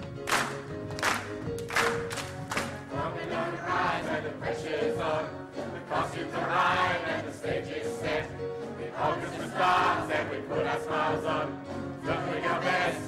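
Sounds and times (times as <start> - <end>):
group singing with accompaniment: 2.7 - 13.0.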